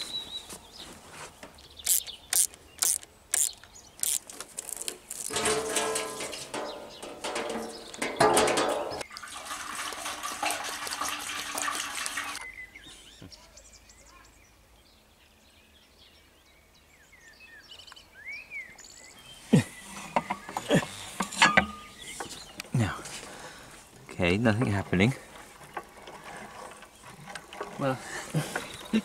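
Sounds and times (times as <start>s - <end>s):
water running: 5.2s - 12.4s, 24.1s - 29.0s
sharp knocks: 5.3s - 9.0s.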